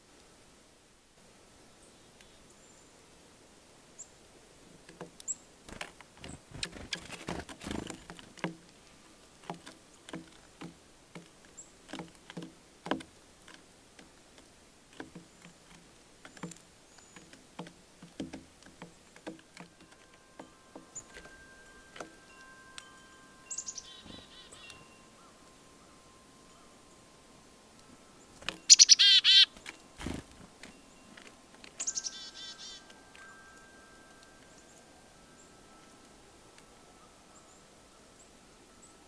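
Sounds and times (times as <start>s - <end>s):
birds pecking on wooden feeder: 4.8s - 22.3s
faint high bird chips: 19.9s - 27.2s, 28.2s - 30.0s, 31.8s - 36.0s.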